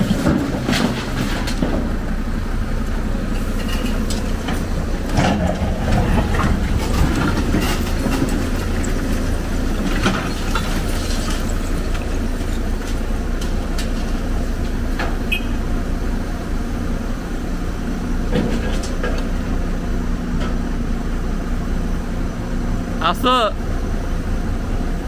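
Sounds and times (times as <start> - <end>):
diesel engine running: 0.0 - 25.0.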